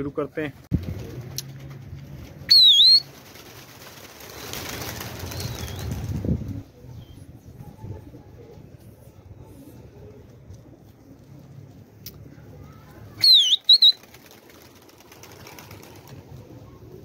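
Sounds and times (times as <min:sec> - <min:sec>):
pigeons flapping wings: 0:00.7 - 0:06.7, 0:13.5 - 0:17.0.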